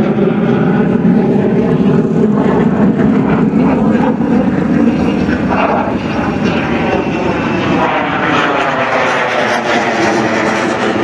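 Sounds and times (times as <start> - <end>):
fighter jet passing overhead: 0.0 - 11.0.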